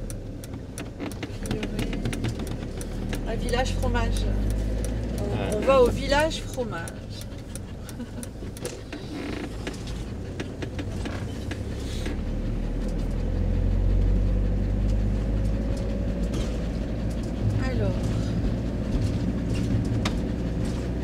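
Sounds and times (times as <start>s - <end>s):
vehicle engine and road noise: 0.0s - 21.0s.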